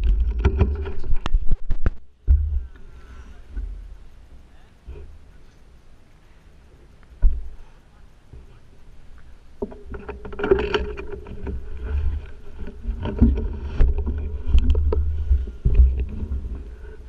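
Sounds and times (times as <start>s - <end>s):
wind rumble on microphone: 0.0s - 4.2s, 9.6s - 17.0s.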